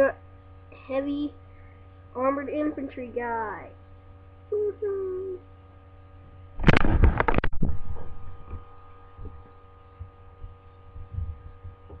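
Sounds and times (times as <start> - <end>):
steady electrical hum: 0.0 - 12.0
microphone handling noise: 6.5 - 12.0.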